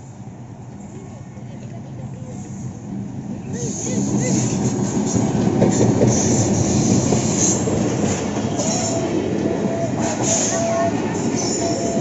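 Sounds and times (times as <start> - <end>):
train wheels rumbling on rails: 0.0 - 12.0
train wheel squeal: 3.6 - 12.0.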